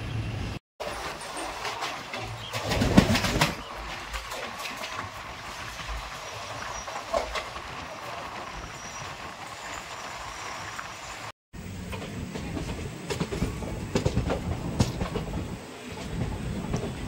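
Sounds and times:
train wheels rumbling on rails: 0.0 - 17.0
wheels clicking over rail joints: 0.8 - 17.0.

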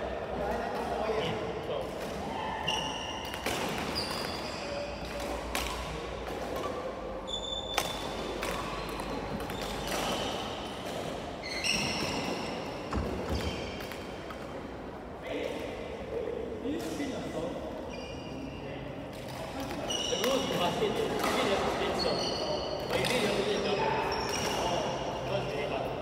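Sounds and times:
rackets hitting shuttlecock: 1.8 - 14.6
shoes squeaking on wooden floor: 11.4 - 13.8.

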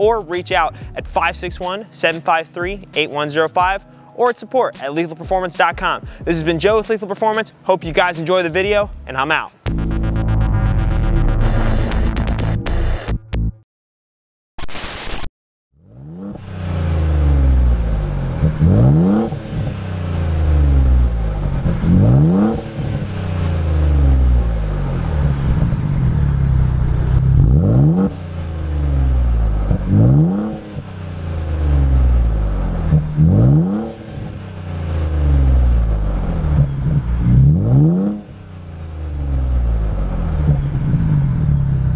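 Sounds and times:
car engine revving: 9.7 - 13.1, 15.8 - 41.9.

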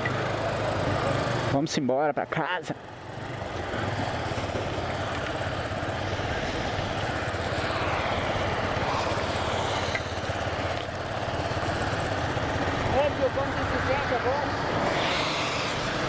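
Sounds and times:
motorcycle engine pulling away: 0.0 - 1.7, 2.9 - 13.9, 14.5 - 16.0
wind rush: 14.4 - 16.0.

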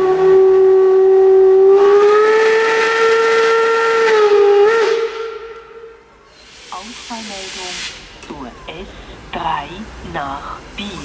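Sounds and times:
locomotive steam whistle blast: 0.0 - 8.1.

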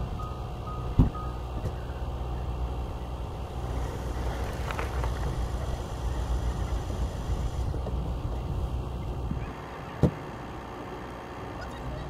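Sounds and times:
low rumble: 0.0 - 9.5.

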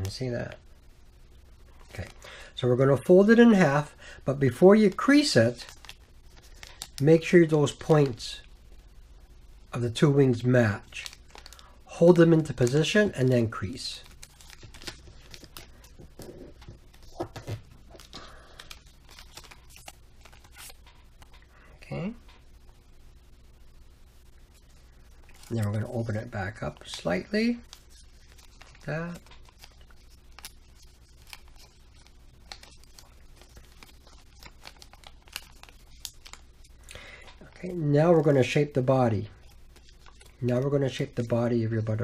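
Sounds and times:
creased paper crackles: 1.6 - 8.5, 9.8 - 22.4, 24.5 - 42.0
paper rustling: 10.9 - 21.4, 24.6 - 41.6.

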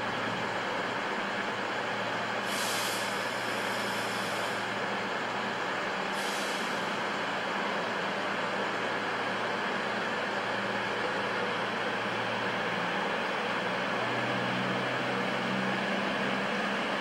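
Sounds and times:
train idling drone: 0.0 - 17.0
air brake hisses: 2.4 - 4.7, 6.1 - 7.0.

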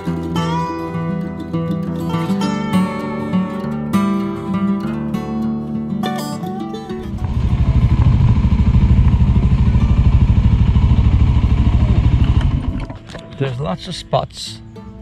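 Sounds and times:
guitar music: 0.0 - 15.0
motorcycle engine running: 7.0 - 13.2.

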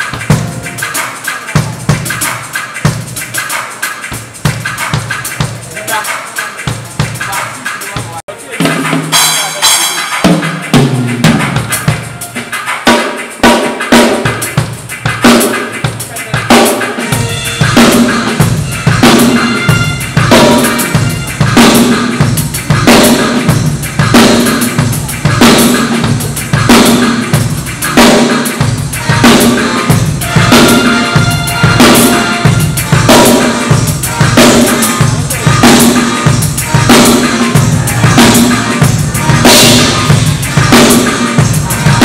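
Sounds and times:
cymbals: 0.0 - 42.0
snare drum: 0.0 - 42.0
bass drum: 12.9 - 42.0.

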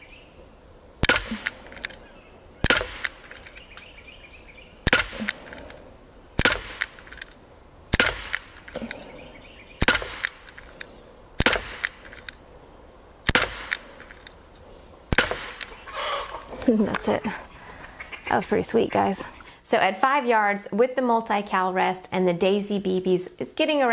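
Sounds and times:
bb pistol pops: 1.0 - 2.0, 2.6 - 3.8, 4.8 - 5.8, 6.4 - 7.3, 7.9 - 9.0, 9.8 - 10.7, 11.4 - 12.4, 13.2 - 14.3, 15.1 - 15.7
faint clicks: 1.0 - 3.9, 4.9 - 5.8, 8.3 - 9.2, 10.2 - 12.4.

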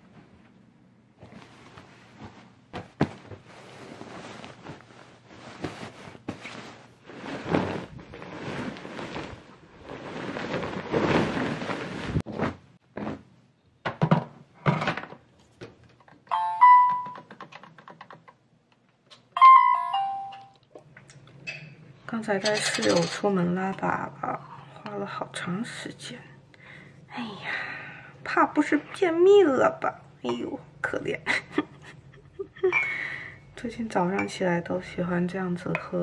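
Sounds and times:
bedding rustling: 0.0 - 13.4.

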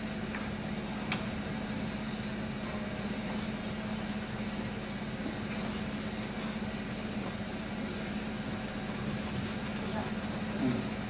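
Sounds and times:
air conditioning hum and hiss: 0.0 - 11.0.

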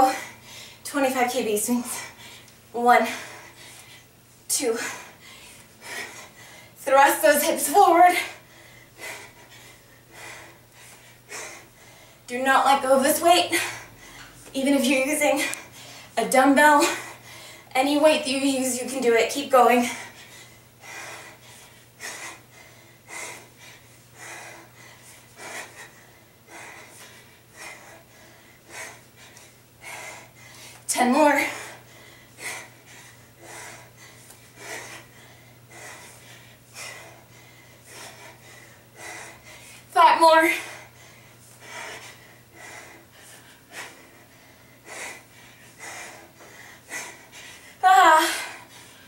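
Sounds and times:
woman breathing hard: 0.0 - 0.9, 1.8 - 6.8, 8.1 - 12.3, 13.5 - 14.5, 15.3 - 16.2, 16.8 - 17.7, 19.8 - 49.0.

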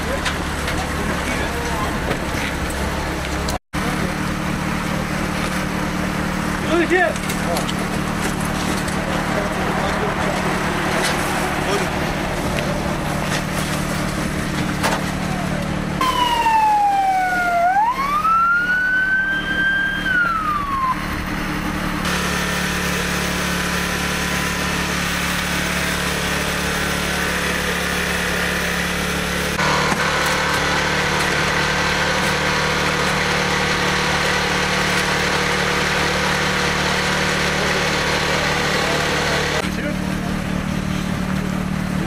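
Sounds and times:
emergency vehicle siren: 15.2 - 21.8.

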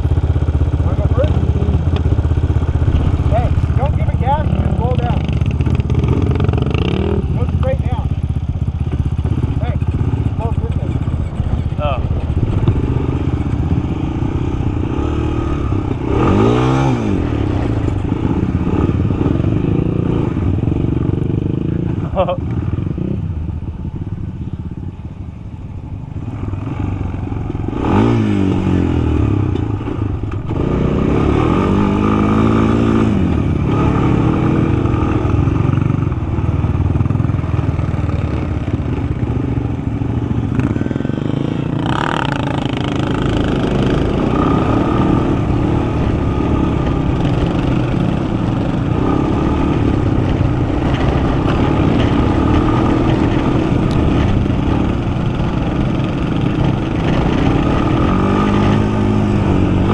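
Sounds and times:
quad engine revving: 0.0 - 8.1, 8.8 - 23.2, 26.7 - 59.9.

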